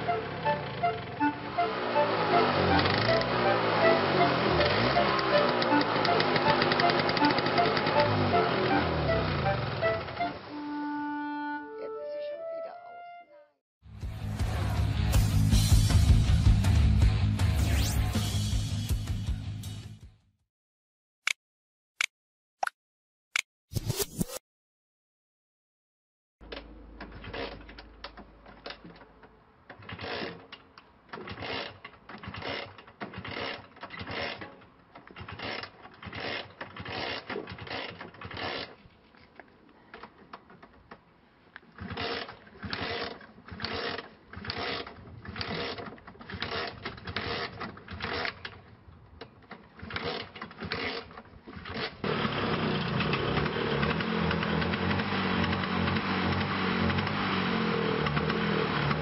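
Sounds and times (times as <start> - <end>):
scooter engine running: 0.0 - 10.4, 49.8 - 59.0
scooter kick-start clatter: 2.3 - 10.3, 26.4 - 59.0.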